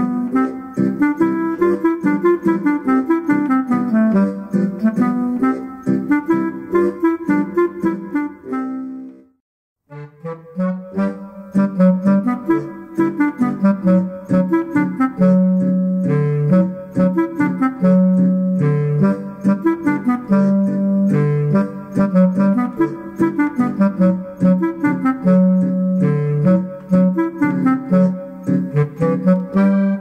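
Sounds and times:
accordion folk dance tune: 0:00.0 - 0:09.2, 0:09.9 - 0:30.0
deep clarinet sound melody: 0:00.0 - 0:30.0.

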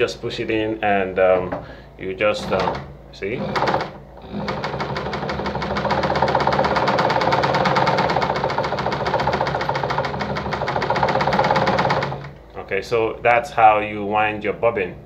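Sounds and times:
sewing machine running: 0:02.3 - 0:12.4.

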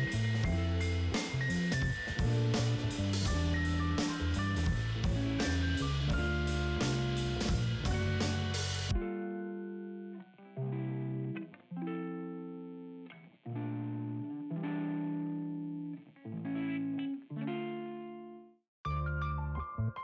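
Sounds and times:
slow instrumental chords: 0:00.0 - 0:10.0.

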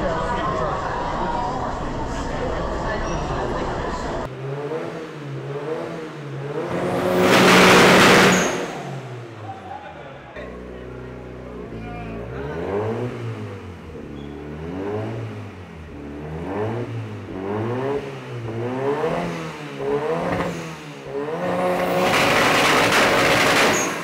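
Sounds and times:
car engine revving: 0:04.2 - 0:24.0.

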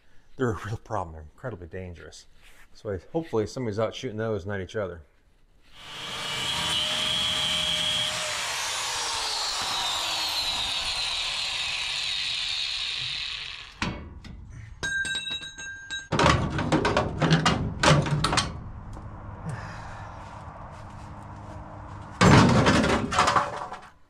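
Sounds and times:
angle grinder spinning down: 0:05.8 - 0:14.0
metal clanks and bangs: 0:13.8 - 0:18.7, 0:22.1 - 0:23.9.

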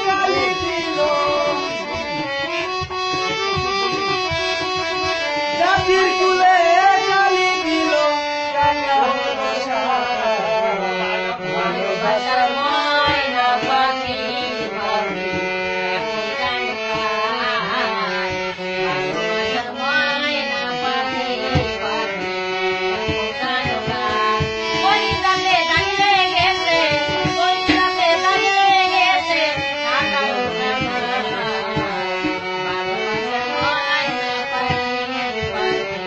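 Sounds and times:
solo violin melody: 0:10.6 - 0:36.0.

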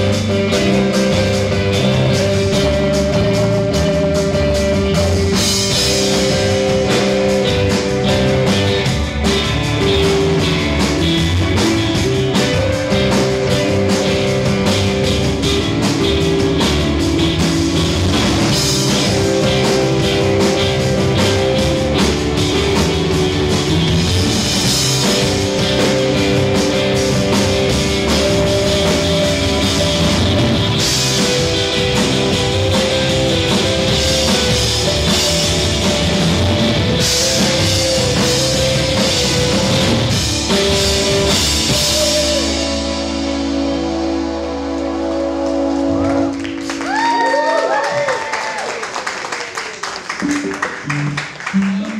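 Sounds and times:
electric bass: 0:00.0 - 0:48.6, 0:50.1 - 0:51.9
drum kit: 0:00.0 - 0:51.9
electric guitars: 0:00.0 - 0:51.9.

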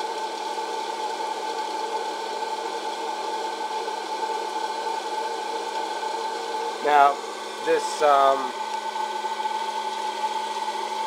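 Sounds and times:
popcorn popper fan whirring: 0:00.0 - 0:11.0.

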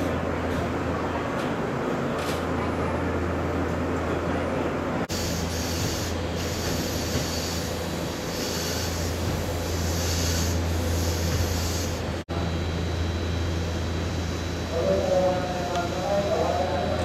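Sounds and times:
rail and wheel noise: 0:00.0 - 0:17.0
train low hum: 0:00.0 - 0:17.0
hiss: 0:05.1 - 0:12.0.

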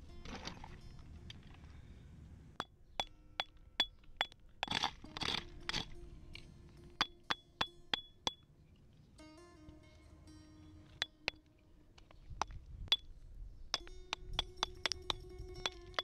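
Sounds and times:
hammer striking rock with ring: 0:02.6 - 0:08.4, 0:12.4 - 0:13.1, 0:13.7 - 0:16.0.

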